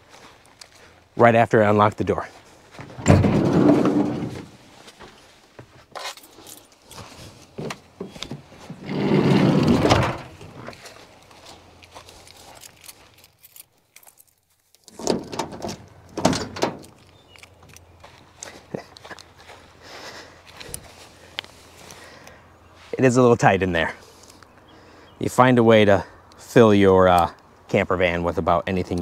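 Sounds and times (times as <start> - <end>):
van doors clunking open: 2.8 - 4.6, 7.6 - 10.7, 14.9 - 17.0
van sliding door rolling shut: 2.9 - 4.5, 8.7 - 10.7, 14.9 - 16.9
keys jingling: 6.0 - 7.1, 11.9 - 18.0.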